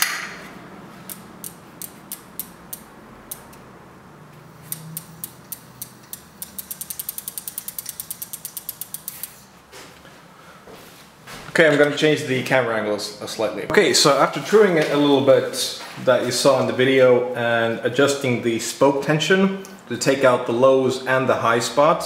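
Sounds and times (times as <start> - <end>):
bicycle freewheel ratchet clicking: 1.1 - 3.6, 4.6 - 9.5.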